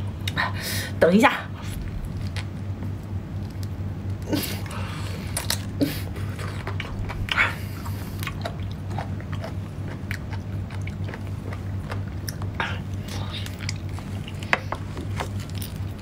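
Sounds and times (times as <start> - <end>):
person chewing seafood: 1.8 - 16.0.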